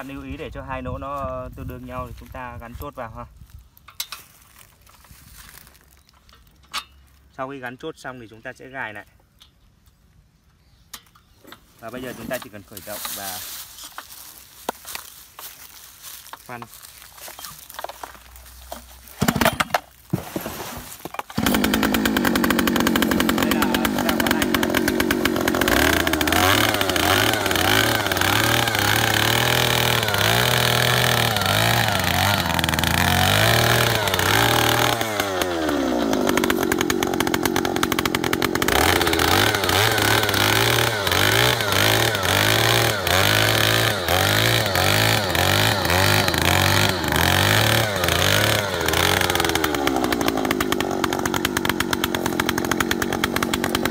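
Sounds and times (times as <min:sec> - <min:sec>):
earth auger engine running: 0:16.6 - 0:53.9.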